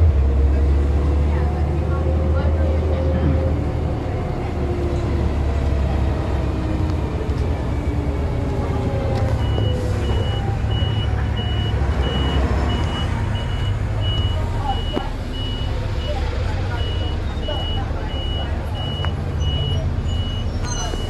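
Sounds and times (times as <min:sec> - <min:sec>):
bus diesel engine rumbling: 0:00.0 - 0:21.0.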